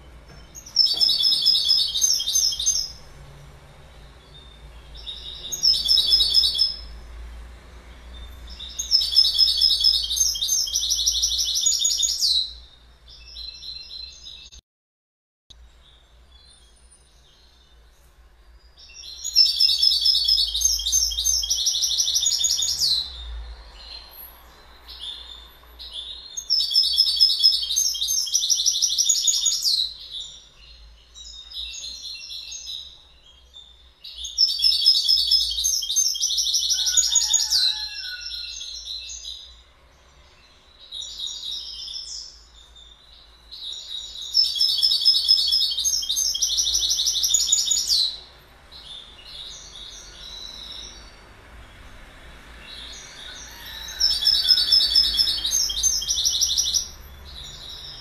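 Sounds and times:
bird twittering: 0:00.0 - 0:03.1, 0:04.0 - 0:06.9, 0:08.2 - 0:14.6, 0:18.9 - 0:23.2, 0:24.9 - 0:33.0, 0:34.1 - 0:39.5, 0:40.8 - 0:48.2, 0:52.8 - 0:58.0
finch singing: 0:00.0 - 0:14.6, 0:15.6 - 0:51.3, 0:52.6 - 0:58.0.

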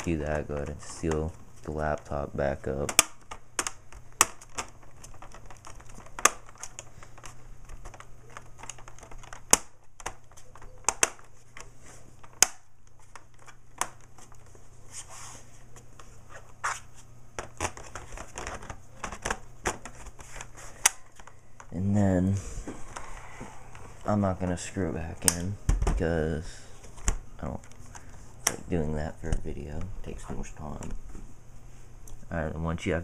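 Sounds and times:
laptop being handled: 0:00.0 - 0:21.8.

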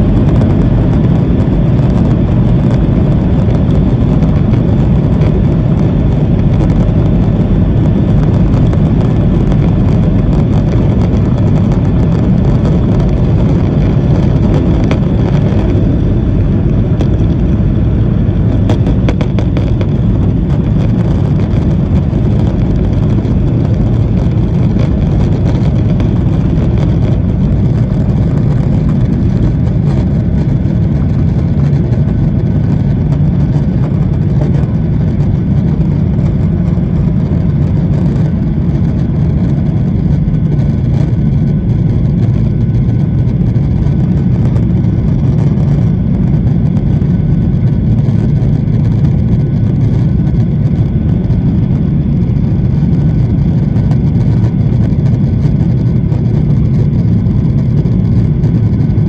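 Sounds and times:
jet engines roaring in cabin: 0:00.0 - 0:59.0.

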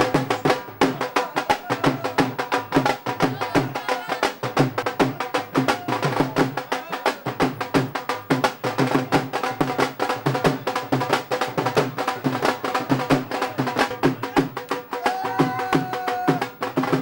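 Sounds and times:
fast bhangra music: 0:00.0 - 0:17.0.

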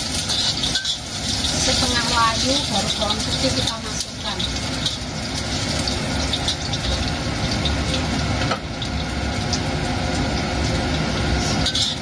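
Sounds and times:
metal spatula scraping wok: 0:00.0 - 0:07.0, 0:11.3 - 0:12.0
shallots sizzling in hot oil: 0:00.0 - 0:12.0.

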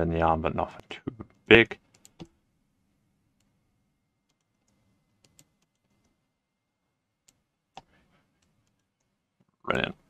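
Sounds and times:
computer mouse clicks: 0:01.8 - 0:02.3, 0:04.2 - 0:06.2.

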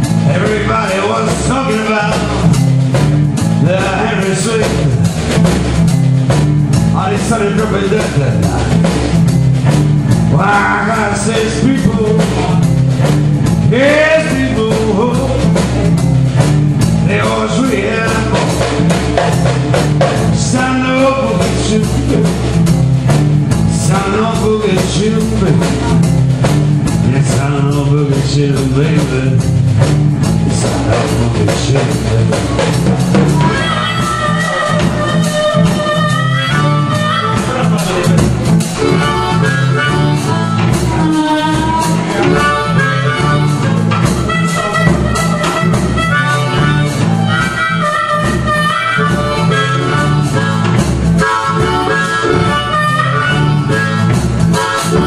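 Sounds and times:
man singing: 0:00.0 - 0:02.6, 0:03.4 - 0:05.1, 0:06.8 - 0:08.9, 0:10.2 - 0:12.9, 0:13.5 - 0:15.7, 0:16.9 - 0:19.0, 0:20.2 - 0:22.6, 0:23.6 - 0:26.2, 0:27.0 - 0:29.6, 0:30.3 - 0:40.3, 0:41.0 - 0:47.5
harmonica: 0:00.0 - 0:26.3, 0:30.3 - 0:55.0
drum kit: 0:00.0 - 0:55.0
electric guitar riff: 0:00.0 - 0:55.0.

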